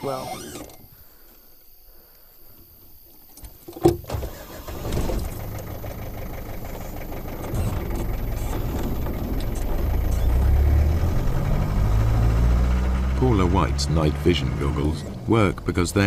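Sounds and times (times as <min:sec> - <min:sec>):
car engine starting and rumbling: 0:04.0 - 0:16.0.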